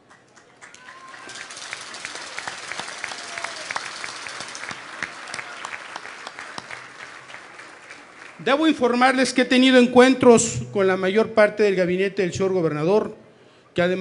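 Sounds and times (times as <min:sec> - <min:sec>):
audience applauding in a hall: 0:00.0 - 0:09.1.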